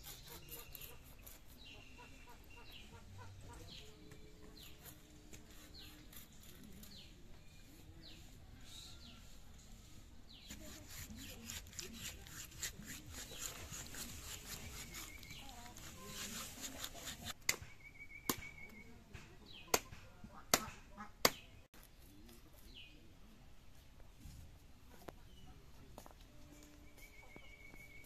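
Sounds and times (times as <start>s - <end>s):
sharp cuts on a blade: 0.0s - 1.8s, 10.5s - 17.6s
scraping fish scales: 10.4s - 17.4s.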